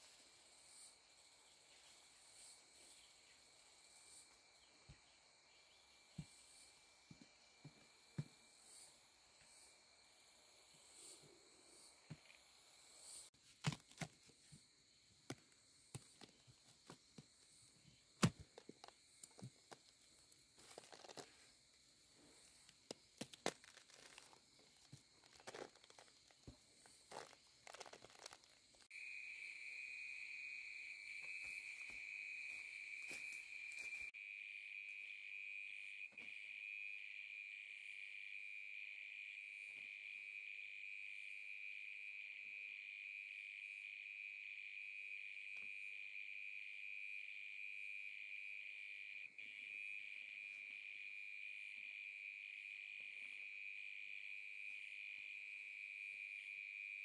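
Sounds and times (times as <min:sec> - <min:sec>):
high-pitched insect trilling: 0:22.4 - 0:34.1.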